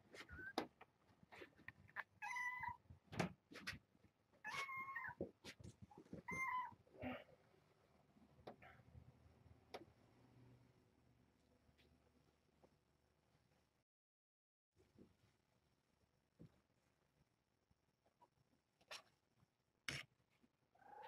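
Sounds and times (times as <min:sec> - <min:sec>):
cat meowing: 0:02.2 - 0:02.8, 0:04.4 - 0:05.2, 0:06.2 - 0:06.8.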